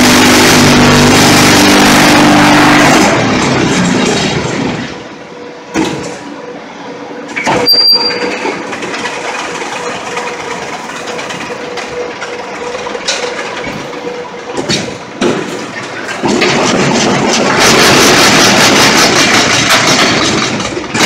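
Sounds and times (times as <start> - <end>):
machinery humming: 0.0 - 21.0
short high squeal: 7.5 - 8.4
metal clanks and knocks: 14.5 - 21.0.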